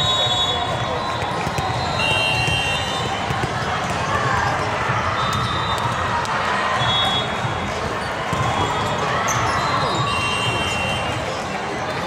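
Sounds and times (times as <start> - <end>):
many voices talking and calling: 0.0 - 12.0
volleyballs hit and bouncing: 0.6 - 10.1.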